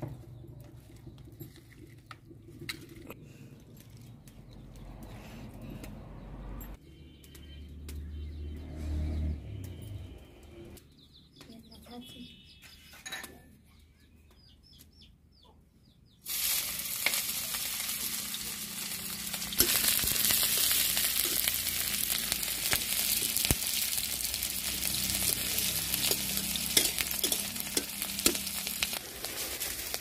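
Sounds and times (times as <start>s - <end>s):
bird chirps: 10.8s - 16.3s
onions sizzling in oil: 16.2s - 30.0s
steel spatula scraping: 25.3s - 30.0s.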